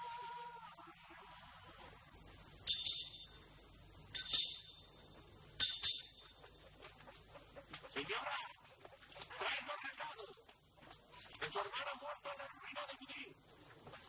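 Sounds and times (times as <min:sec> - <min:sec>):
sharp double clinks: 0:02.6 - 0:06.4.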